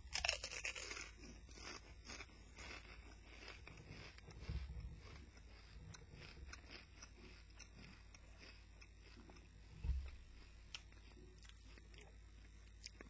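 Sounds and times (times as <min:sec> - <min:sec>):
tortilla chips being chewed: 0:00.0 - 0:13.0
dull low thump: 0:09.8 - 0:10.2.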